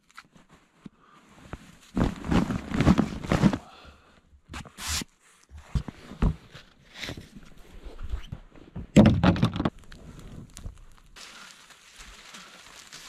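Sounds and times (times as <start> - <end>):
brush sweeping snow: 11.2 - 13.0.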